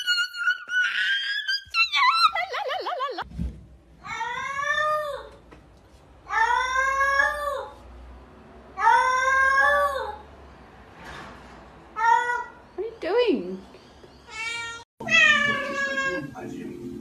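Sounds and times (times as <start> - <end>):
cat meowing: 14.3 - 16.3.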